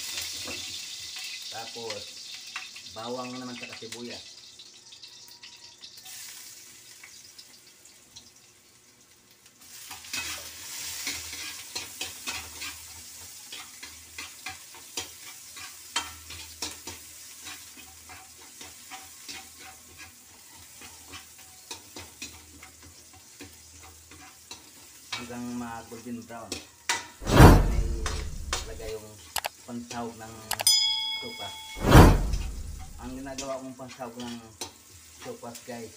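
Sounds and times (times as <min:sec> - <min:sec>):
sizzling in hot oil: 0:00.0 - 0:35.9
metal spoon scraping wok: 0:27.2 - 0:28.9, 0:31.5 - 0:33.5.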